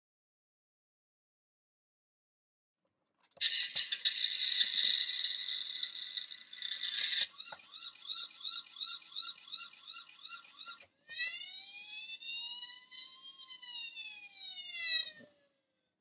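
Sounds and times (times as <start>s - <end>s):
toy siren warbling and wailing: 3.4s - 15.6s.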